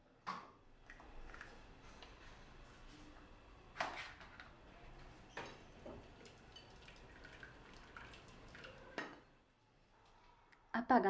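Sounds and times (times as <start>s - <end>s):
water splashing and dripping: 6.2s - 9.0s.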